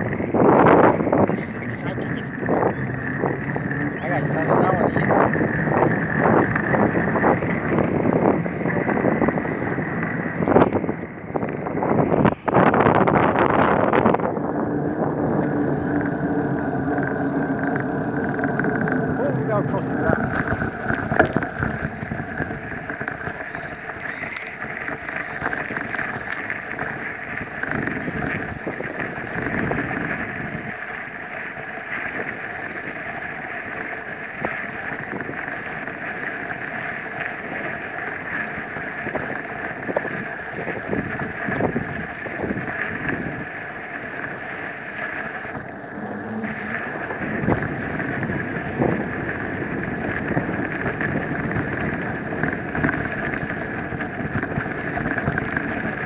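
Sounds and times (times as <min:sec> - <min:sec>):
wind rushing over microphone: 0:00.0 - 0:56.0
bicycle knocks and rattles: 0:13.5 - 0:45.7, 0:46.9 - 0:56.0.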